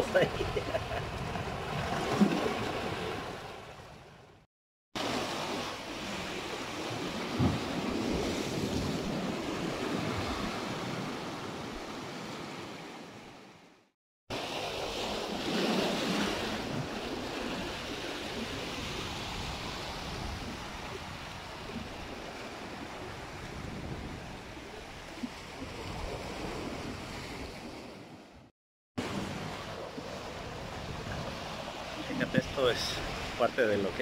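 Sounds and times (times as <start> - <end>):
ocean waves washing over rocks: 5.0 - 13.1, 29.0 - 34.0.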